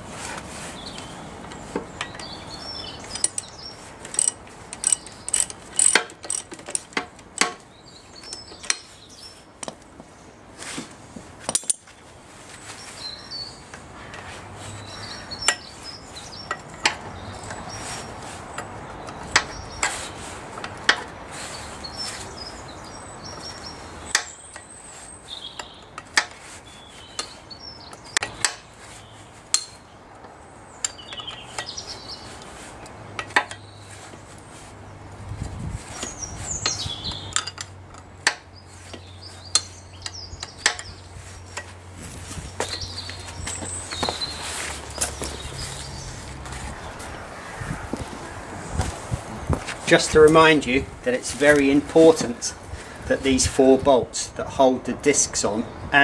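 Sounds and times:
ratchet spanner clicking: 0:04.1 - 0:07.5.

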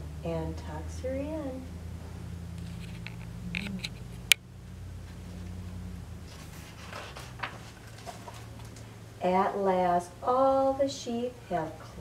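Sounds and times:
low electrical hum: 0:00.0 - 0:12.0
faint page rustle: 0:06.3 - 0:08.9.

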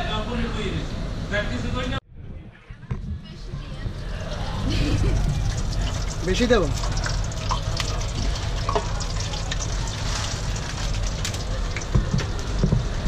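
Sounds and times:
low steady rumble: 0:00.1 - 0:13.0
potatoes sizzling in deep fryer: 0:03.9 - 0:13.0.

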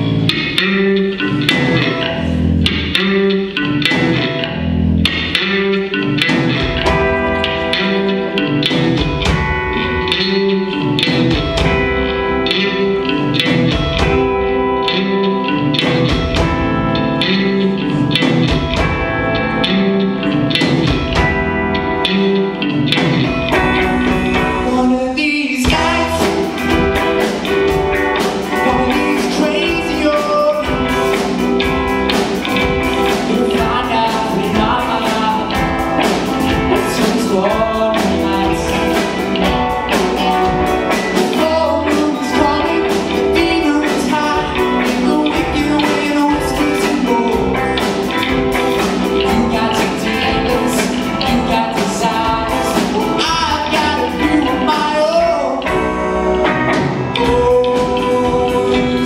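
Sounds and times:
live rock band playing: 0:00.0 - 0:59.0
lead singer singing: 0:23.4 - 0:31.6, 0:32.7 - 0:59.0.

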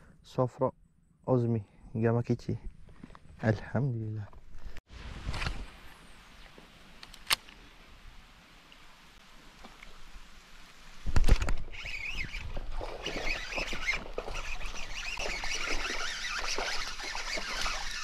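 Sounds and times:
fish splashing in water: 0:11.8 - 0:18.0.

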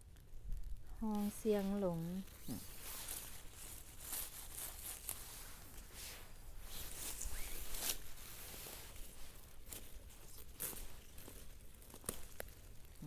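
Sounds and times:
leaves and stems rustling: 0:00.0 - 0:13.0.

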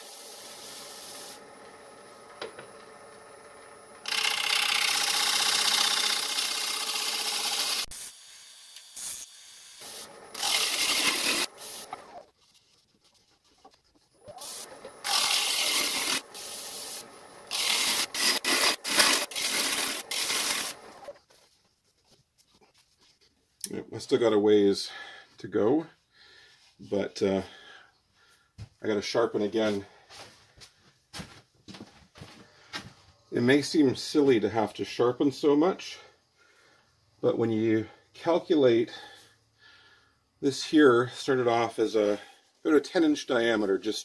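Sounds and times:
lathe gouge shaving wood: 0:00.0 - 0:08.0, 0:09.8 - 0:12.2, 0:13.8 - 0:21.2.

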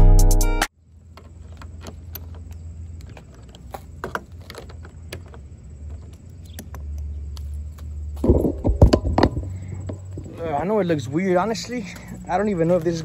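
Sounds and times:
steady low hum: 0:00.8 - 0:13.0.

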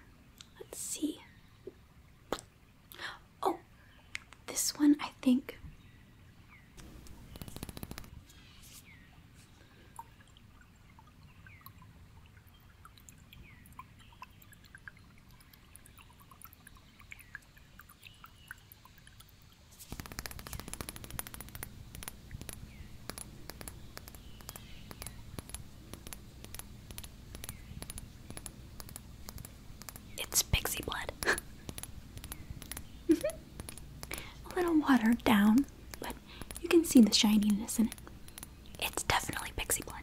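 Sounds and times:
clicks and taps on glass: 0:06.9 - 0:08.1, 0:19.9 - 0:40.0
faint gurgling blips: 0:09.0 - 0:40.0.

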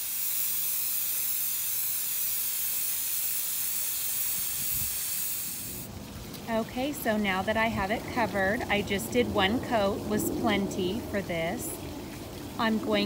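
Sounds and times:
aerosol paint spraying hiss: 0:00.0 - 0:05.9.

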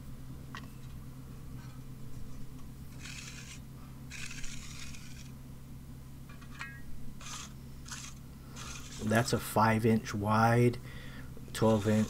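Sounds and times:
trowel scraping concrete: 0:02.9 - 0:05.4, 0:07.2 - 0:09.4, 0:11.6 - 0:12.0.

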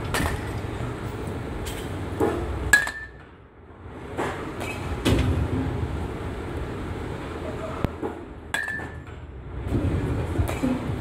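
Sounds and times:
low background noise: 0:00.0 - 0:11.0
metal bat hitting ball: 0:02.2 - 0:03.3.

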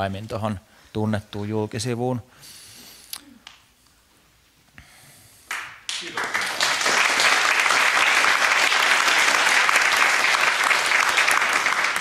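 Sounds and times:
audience applause: 0:05.5 - 0:12.0.

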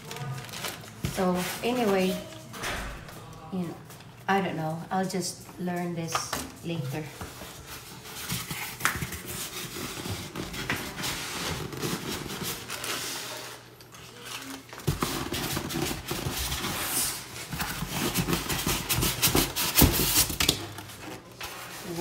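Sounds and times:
styrofoam scraping cardboard: 0:14.8 - 0:20.5.

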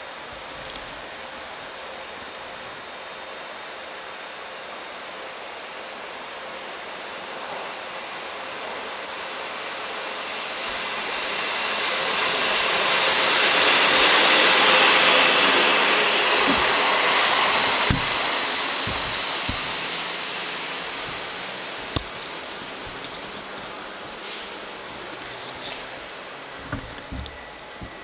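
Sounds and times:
train wheels rushing on rail: 0:05.1 - 0:28.0
clacks over rail joints: 0:16.2 - 0:20.2, 0:20.8 - 0:24.0.

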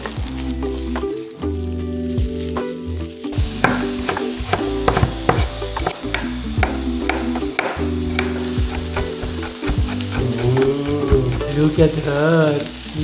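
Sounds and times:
background music: 0:00.0 - 0:13.0
potatoes frying in oil: 0:00.0 - 0:13.0
utensil knocking and scraping pan: 0:03.4 - 0:11.8.

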